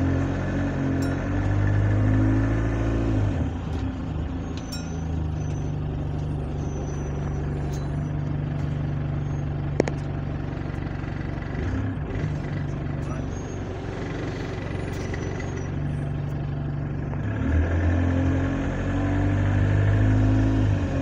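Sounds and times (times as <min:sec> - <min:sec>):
bus engine humming: 0:00.0 - 0:21.0.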